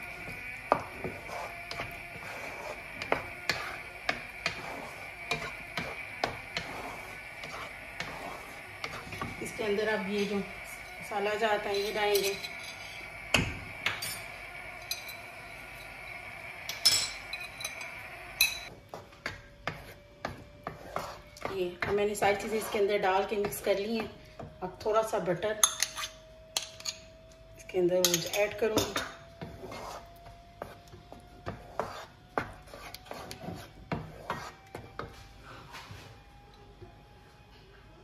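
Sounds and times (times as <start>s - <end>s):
wooden spatula scraping a pan: 0.2s - 10.5s, 20.6s - 23.7s, 29.4s - 30.8s, 31.4s - 35.2s.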